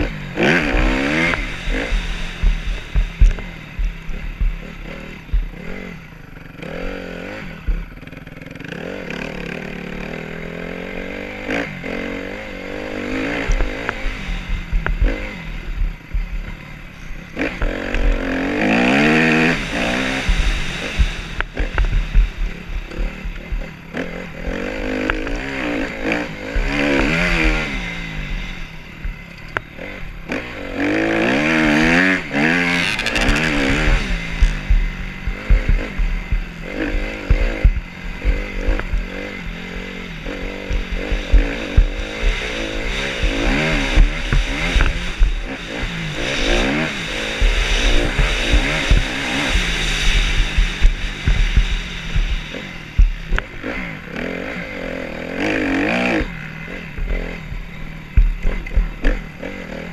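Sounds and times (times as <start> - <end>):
wind rushing over microphone: 0.0 - 6.8, 31.1 - 54.2
dirt bike engine revving: 0.0 - 59.9.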